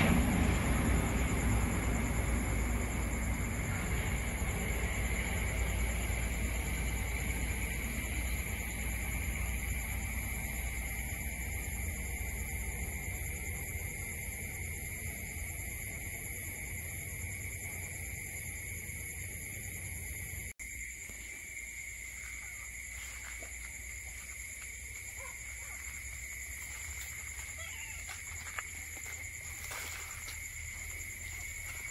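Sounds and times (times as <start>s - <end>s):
low rumble: 0.0s - 17.4s
night insect chorus: 0.0s - 31.9s.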